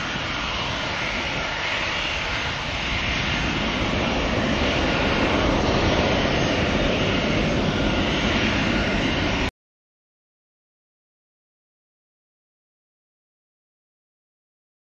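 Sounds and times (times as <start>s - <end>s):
jet engines rumbling: 0.0s - 9.5s.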